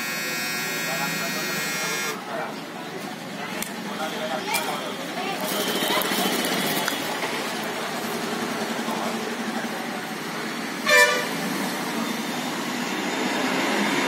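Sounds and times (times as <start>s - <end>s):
vehicle horn toot: 0.0s - 2.2s, 4.0s - 6.4s, 10.8s - 11.4s
street traffic: 0.0s - 14.0s.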